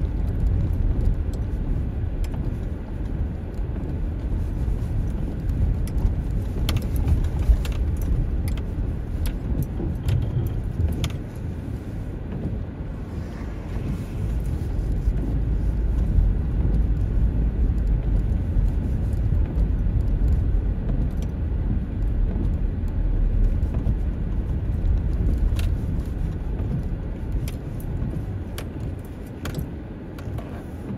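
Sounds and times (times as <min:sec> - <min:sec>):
tyre and suspension rumble: 0:00.0 - 0:30.9
car knocks and rattles: 0:05.0 - 0:11.6, 0:12.2 - 0:13.1, 0:13.8 - 0:30.9.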